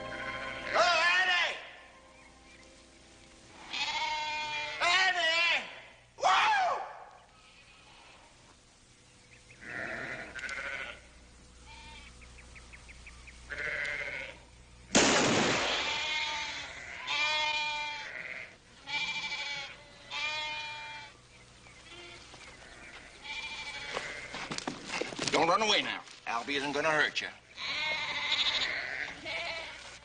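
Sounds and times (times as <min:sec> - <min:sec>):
sheep bleating: 0:00.0 - 0:01.8, 0:03.5 - 0:06.0, 0:09.6 - 0:12.1, 0:13.5 - 0:14.5, 0:15.8 - 0:21.2, 0:21.8 - 0:24.4, 0:27.5 - 0:30.0
loud bang: 0:15.0 - 0:16.1.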